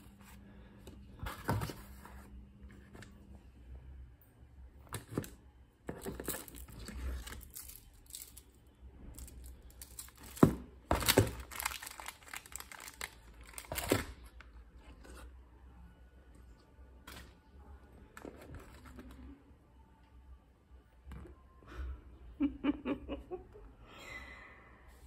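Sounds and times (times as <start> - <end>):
plastic wrappers crinkling: 6.1 - 8.5, 9.1 - 14.4.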